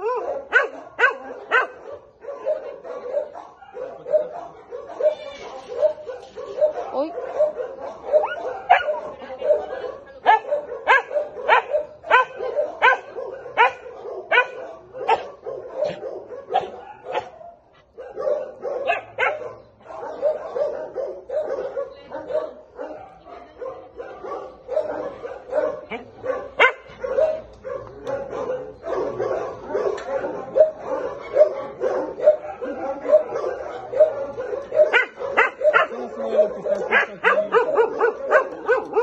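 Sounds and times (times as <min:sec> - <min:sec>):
dog yipping: 0:00.0 - 0:23.2.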